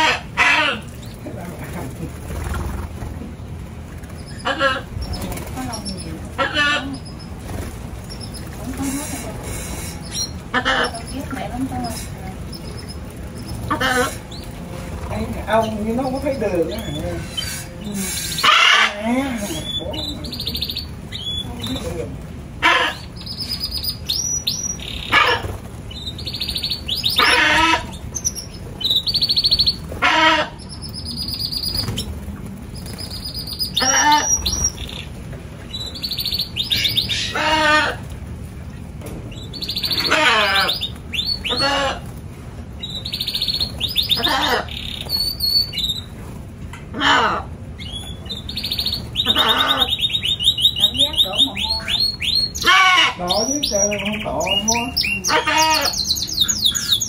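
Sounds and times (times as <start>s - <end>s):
canaries trilling: 0.0s - 57.0s.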